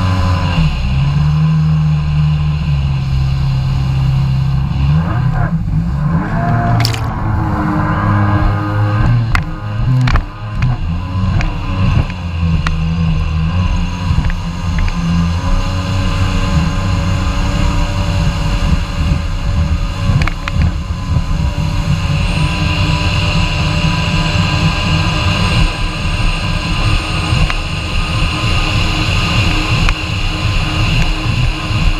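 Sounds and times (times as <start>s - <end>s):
jet ski engine drone: 0.0s - 31.9s.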